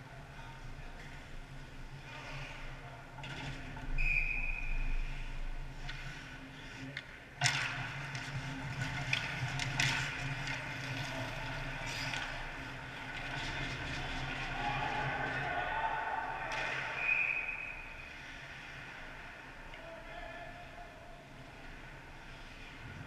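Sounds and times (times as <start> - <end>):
skates scraping ice: 5.1 - 15.6
sticks and puck clacking: 5.7 - 15.6, 16.4 - 17.6.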